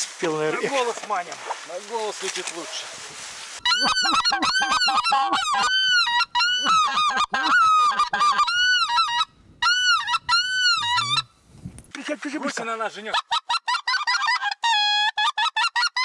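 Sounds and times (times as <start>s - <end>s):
geese calling: 3.6s - 11.4s.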